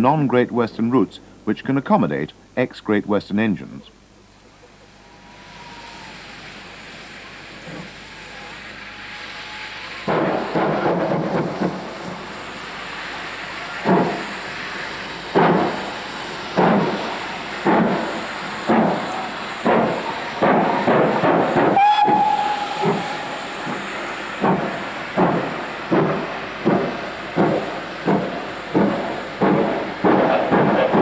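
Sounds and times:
steam locomotive exhaust beats: 0:04.6 - 0:31.0
steam hissing: 0:04.8 - 0:31.0
steam whistle: 0:05.1 - 0:10.6, 0:19.0 - 0:23.9.

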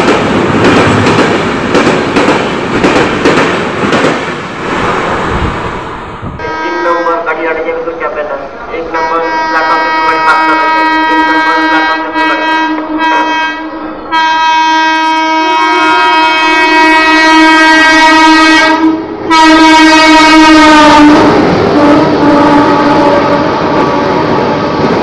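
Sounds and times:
passing train rush and clatter: 0:00.0 - 0:25.0
locomotive air horn: 0:06.4 - 0:07.2, 0:08.9 - 0:24.6.

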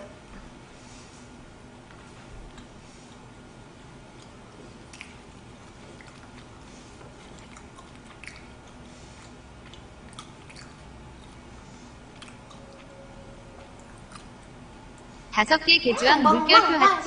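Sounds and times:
person chewing: 0:01.9 - 0:03.4, 0:04.0 - 0:15.1.

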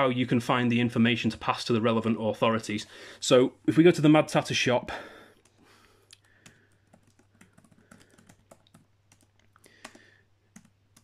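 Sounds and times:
keyboard typing: 0:05.4 - 0:11.0.

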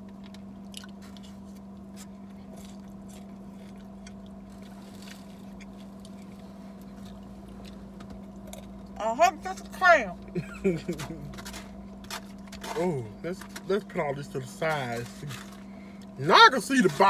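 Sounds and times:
chewing salad: 0:00.0 - 0:09.0
steady low hum: 0:00.0 - 0:17.0.

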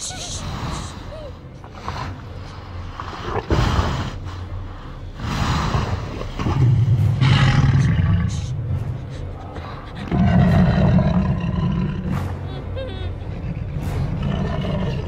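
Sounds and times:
dinosaur growling low: 0:05.2 - 0:15.0.

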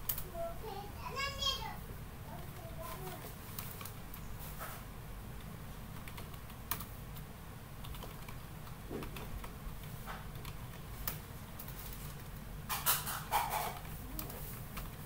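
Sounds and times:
keyboard typing clicks: 0:00.0 - 0:00.3, 0:02.3 - 0:04.3, 0:05.4 - 0:15.0.

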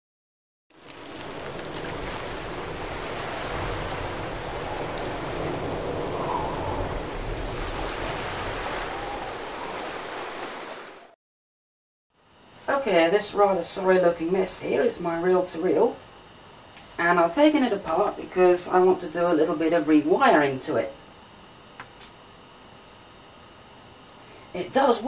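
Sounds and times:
rain on hard surfaces: 0:00.7 - 0:11.2
drips ticking: 0:00.8 - 0:08.4.

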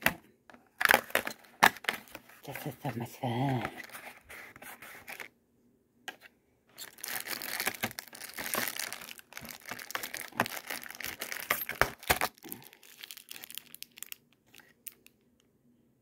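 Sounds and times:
packaging crinkling: 0:00.0 - 0:05.3, 0:06.8 - 0:15.2
cardboard tearing: 0:06.8 - 0:12.6.

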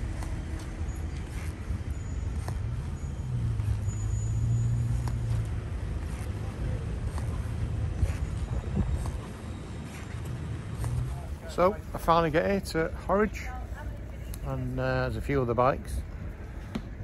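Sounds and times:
motorcycle engine: 0:00.0 - 0:11.6.

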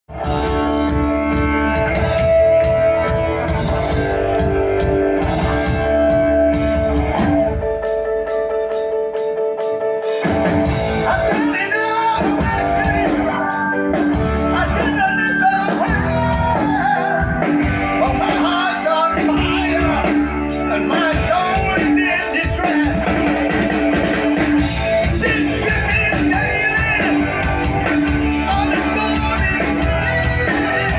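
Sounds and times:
bass guitar: 0:00.1 - 0:30.9
drums: 0:00.1 - 0:30.9
electric guitar: 0:00.1 - 0:30.9
man singing lead vocal: 0:11.0 - 0:23.8, 0:25.0 - 0:30.9.

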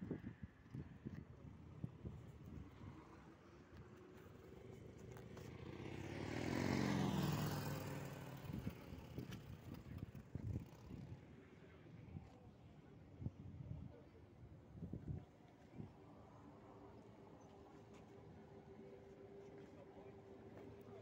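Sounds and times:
vehicle driving past: 0:05.6 - 0:11.1.

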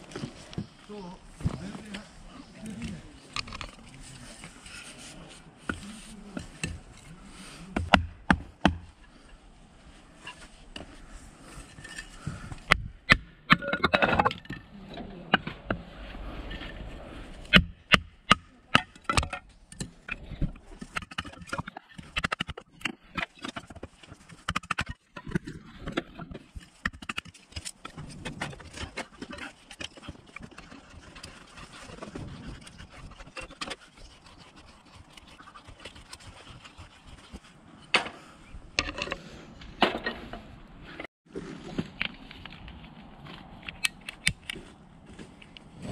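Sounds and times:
hatchet splitting wood: 0:07.7 - 0:09.0, 0:17.5 - 0:20.0.

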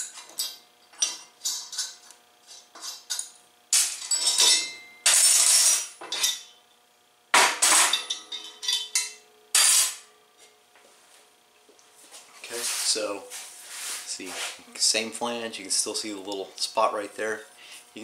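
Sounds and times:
metal tools clanking on workbench: 0:02.8 - 0:06.5, 0:07.4 - 0:10.0.

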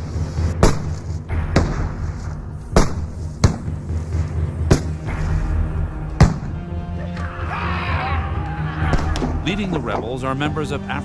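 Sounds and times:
steady low drone: 0:00.0 - 0:11.0
musket shots: 0:00.6 - 0:03.7, 0:04.7 - 0:05.2.

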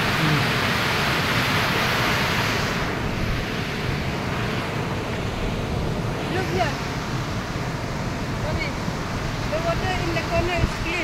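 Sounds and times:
waterfall rushing: 0:00.0 - 0:11.0.

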